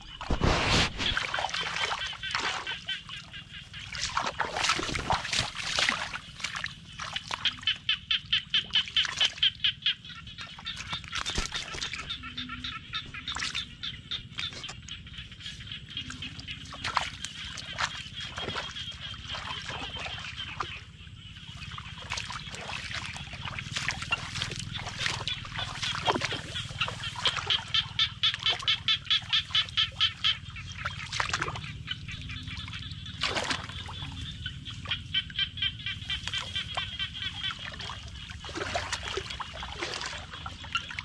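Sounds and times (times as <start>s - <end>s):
hands splashing in muddy water: 0.0s - 12.2s, 13.0s - 41.0s
animal calling in pulsing runs: 21.5s - 41.0s.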